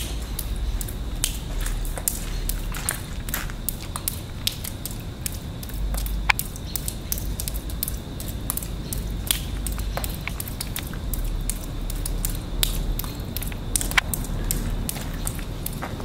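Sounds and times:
footsteps crunching on broken glass: 0.1 - 3.9.

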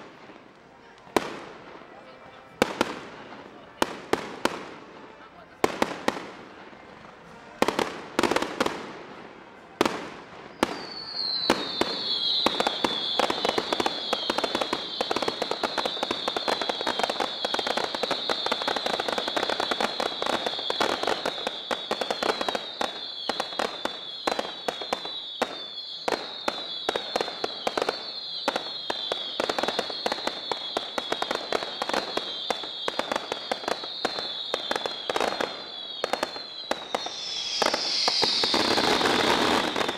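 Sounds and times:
firework bangs: 31.3 - 39.9
high tone sliding downward: 36.6 - 39.9.

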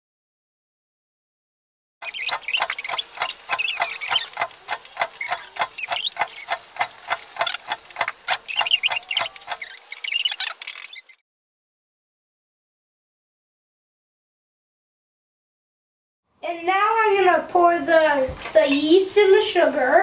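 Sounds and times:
high squeaks: 2.0 - 11.2.

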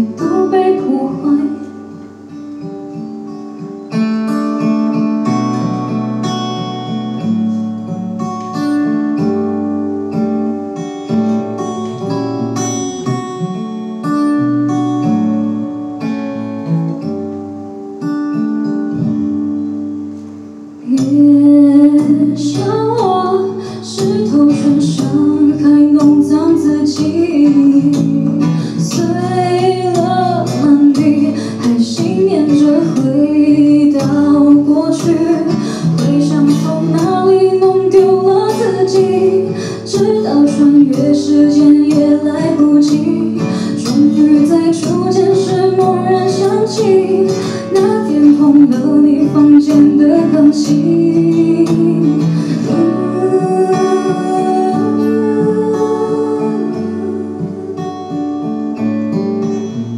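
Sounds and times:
woman singing pop ballad: 0.0 - 2.1, 20.8 - 58.6
strummed acoustic guitar: 0.0 - 59.9.

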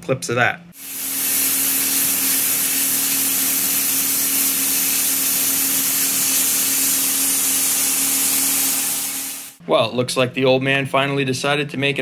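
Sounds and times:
plasma cutter hissing: 0.8 - 9.6.

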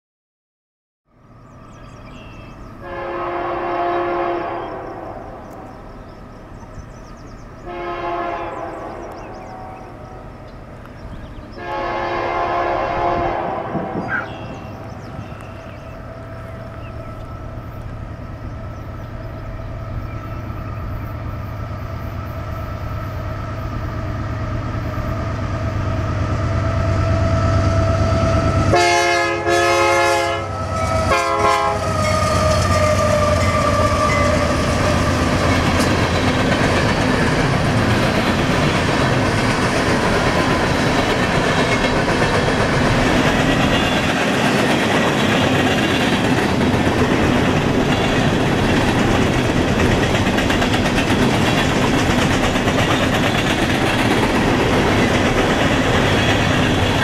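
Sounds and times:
locomotive engines rumbling: 1.2 - 57.0
locomotive air horn blasts: 2.8 - 5.6, 7.6 - 10.0, 11.6 - 14.6, 28.2 - 34.7.

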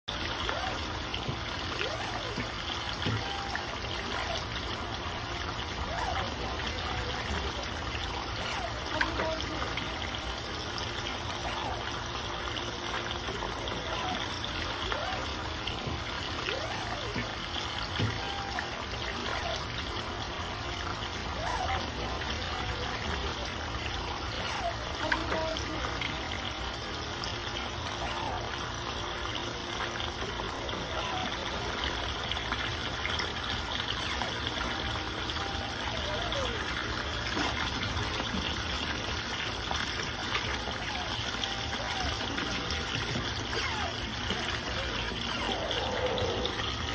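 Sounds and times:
trickling running water: 0.1 - 46.9
faint squeaky glides: 33.4 - 46.9.

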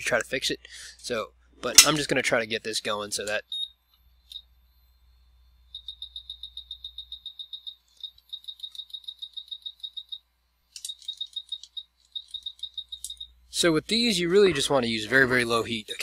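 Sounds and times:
rapid high-pitched electronic beeps: 11.1 - 13.4.

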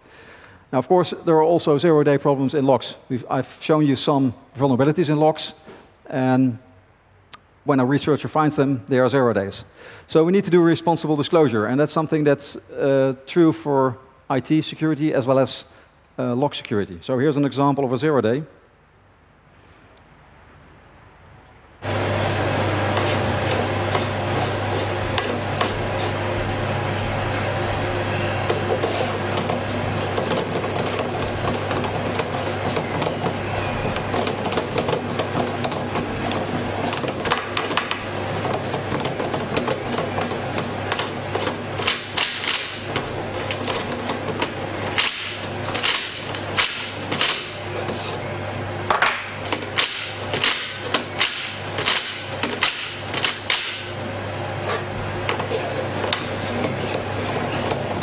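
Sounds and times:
steady low hum: 18.8 - 58.0
metal ring scraping on door knob: 22.9 - 27.1, 27.8 - 48.2, 54.7 - 58.0.

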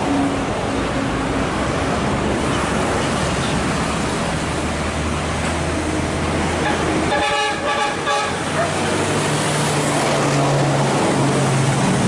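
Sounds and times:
steady rushing noise: 0.0 - 12.0
truck horn: 6.6 - 8.7.

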